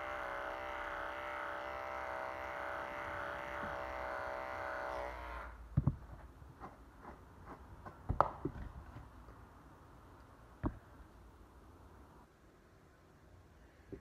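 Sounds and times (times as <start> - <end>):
electric clippers humming: 0.0 - 5.6.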